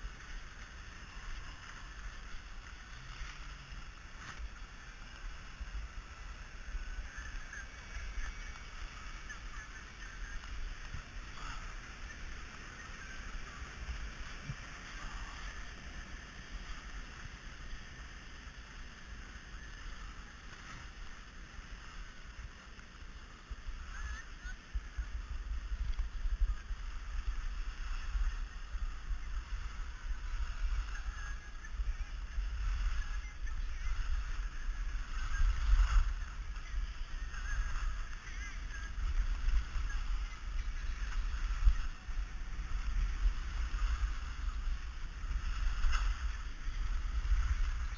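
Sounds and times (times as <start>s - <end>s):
wind buffeting microphone: 23.5s - 47.9s.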